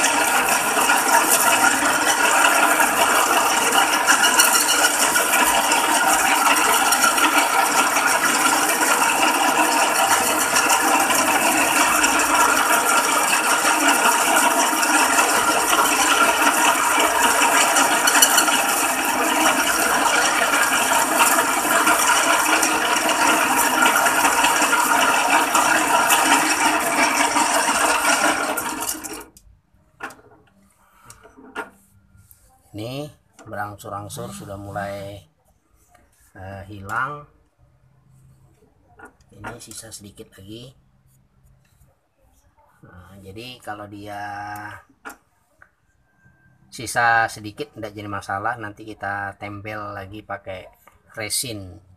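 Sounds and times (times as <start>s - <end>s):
metal lathe cutting: 0.0s - 29.3s.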